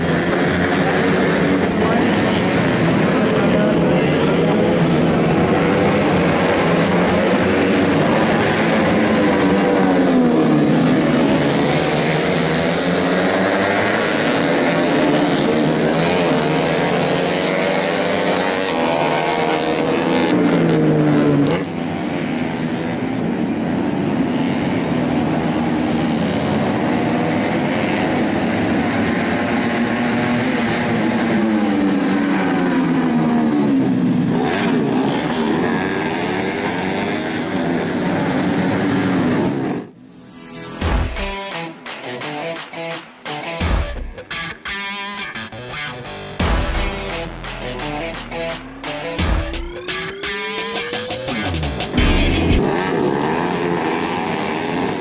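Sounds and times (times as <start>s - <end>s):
motorcycles revving past: 0.0s - 22.8s.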